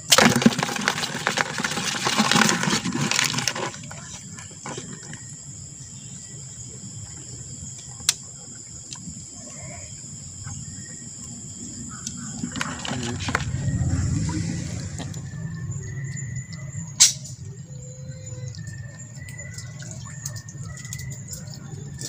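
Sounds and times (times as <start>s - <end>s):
water splashing and sloshing: 0.0s - 5.6s, 12.2s - 22.0s.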